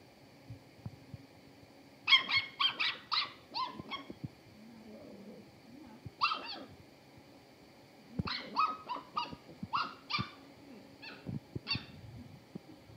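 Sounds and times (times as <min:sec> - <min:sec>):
puppy yipping and whining: 0:02.1 - 0:04.1, 0:06.2 - 0:06.7, 0:08.3 - 0:10.4, 0:11.0 - 0:12.0.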